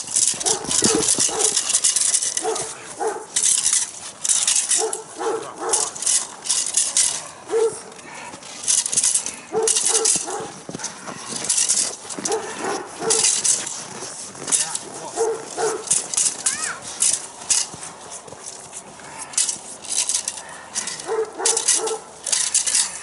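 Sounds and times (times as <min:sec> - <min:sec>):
large dog barking: 0:00.4 - 0:01.6, 0:02.4 - 0:03.3, 0:04.8 - 0:06.0, 0:07.5 - 0:07.9, 0:09.5 - 0:10.6, 0:12.2 - 0:13.4, 0:15.1 - 0:15.9, 0:21.0 - 0:22.1.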